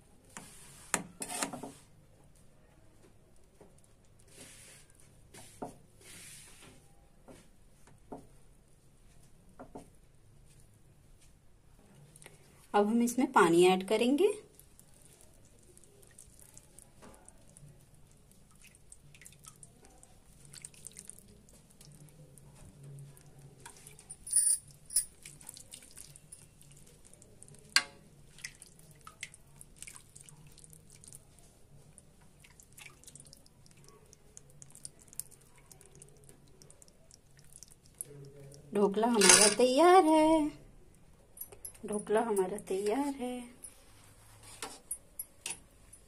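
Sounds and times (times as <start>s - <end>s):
water dripping and trickling: 14.4s - 39.7s
ladle clinking on steel: 24.2s - 25.2s, 39.2s - 39.6s.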